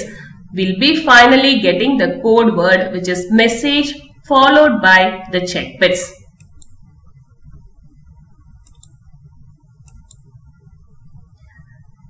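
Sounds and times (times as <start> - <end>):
low steady room hum: 0.0 - 12.0
computer mouse clicking: 6.3 - 6.9, 8.6 - 9.2, 9.8 - 11.9.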